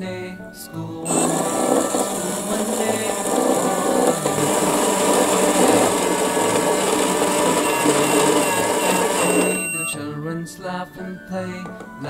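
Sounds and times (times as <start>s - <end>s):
toy microwave motor whirring: 1.1s - 10.0s.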